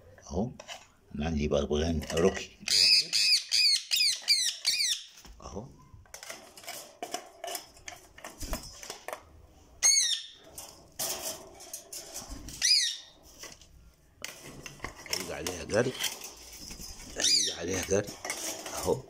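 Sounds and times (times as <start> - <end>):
parrot squawking: 2.7 - 5.1, 9.8 - 10.4, 12.6 - 13.2, 17.2 - 17.8.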